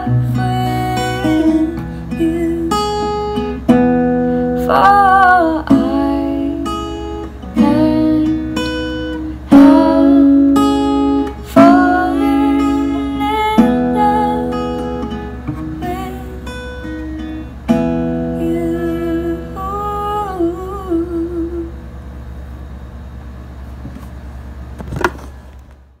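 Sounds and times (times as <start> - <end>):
person singing: 0.0 - 2.9, 4.6 - 6.7, 7.6 - 8.6, 9.4 - 14.6, 15.8 - 16.5, 18.4 - 21.7
acoustic guitar strumming: 0.0 - 22.0.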